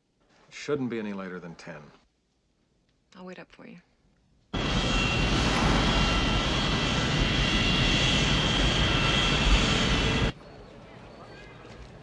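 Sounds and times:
jet engines running: 0:04.5 - 0:11.3.

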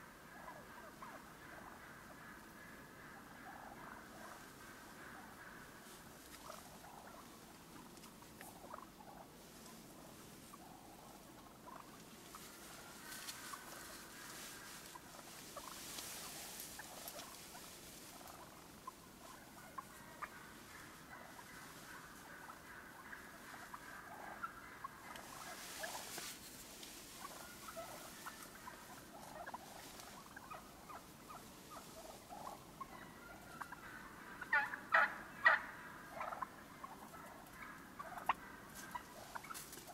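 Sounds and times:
wild turkeys calling: 0:00.0 - 0:39.9.

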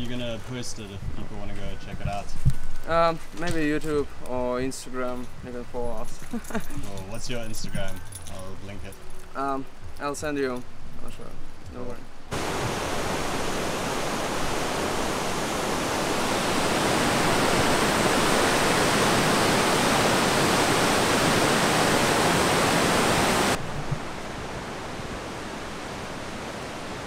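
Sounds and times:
outdoor hiss: 0:00.0 - 0:27.0
river water rushing: 0:12.3 - 0:27.0.

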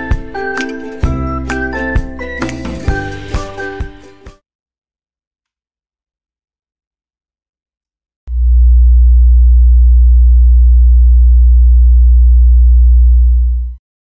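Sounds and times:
low sine-wave test tone: 0:08.3 - 0:13.8.

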